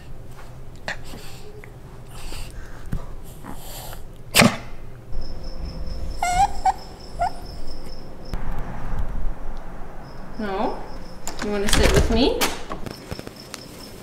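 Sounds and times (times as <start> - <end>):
dog whining: 5.2 - 8.3.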